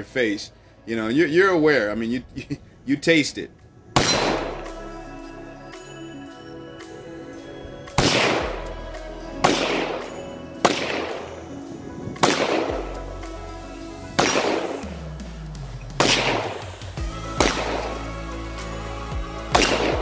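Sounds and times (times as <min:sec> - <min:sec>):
rifle shots: 0:04.0 - 0:04.6, 0:08.0 - 0:08.6, 0:09.4 - 0:11.4, 0:12.2 - 0:12.8, 0:14.2 - 0:14.8, 0:16.0 - 0:18.0, 0:19.5 - 0:20.0.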